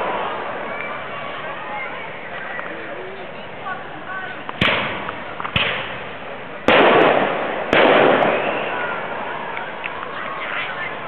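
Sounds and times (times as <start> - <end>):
fireworks bangs: 4.6 - 10.9.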